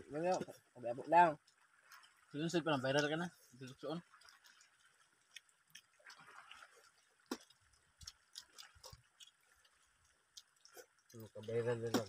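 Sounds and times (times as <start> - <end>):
people eating by hand: 2.8 - 12.0.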